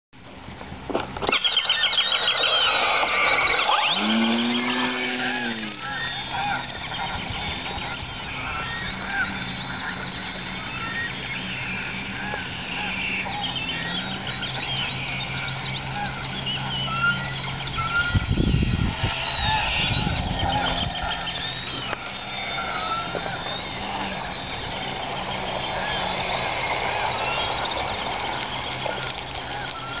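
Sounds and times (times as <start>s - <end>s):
birds honking and squawking: 1.3s - 30.0s
steady low hum: 2.6s - 30.0s
loud low rumble: 18.0s - 25.8s.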